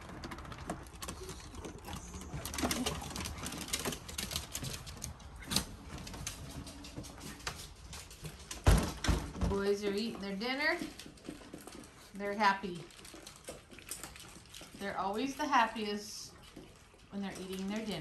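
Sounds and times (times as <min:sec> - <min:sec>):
dog claws clicking on wood: 0:00.0 - 0:08.7, 0:12.9 - 0:14.8.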